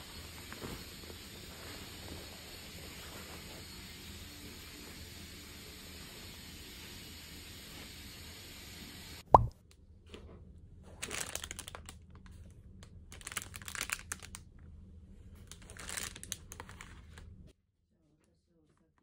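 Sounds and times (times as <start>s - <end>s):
plastic packaging crinkling: 11.0s - 12.4s, 13.1s - 14.4s, 15.4s - 17.2s.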